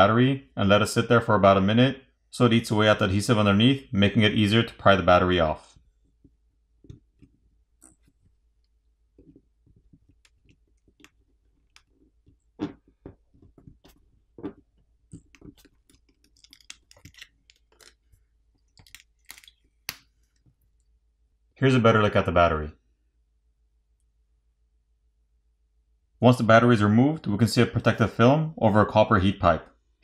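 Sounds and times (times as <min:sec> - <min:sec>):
adhesive clicks and crackles: 0:15.1 - 0:20.1.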